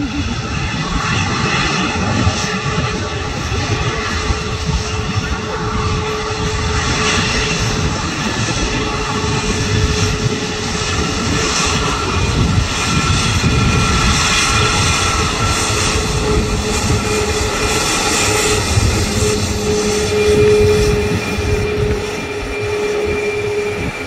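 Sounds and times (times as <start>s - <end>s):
jet engines roaring: 0.0s - 24.0s.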